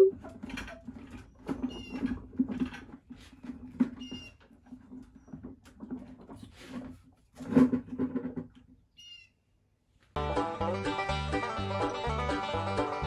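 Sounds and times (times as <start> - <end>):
knocks and clatter of parts: 0.1 - 8.8.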